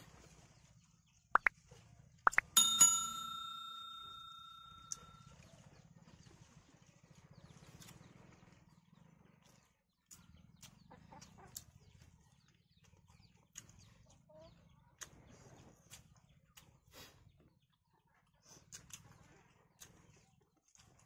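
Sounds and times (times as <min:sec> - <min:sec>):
people chewing with lip smacks: 0:09.4 - 0:14.2, 0:15.0 - 0:17.3, 0:18.2 - 0:21.0.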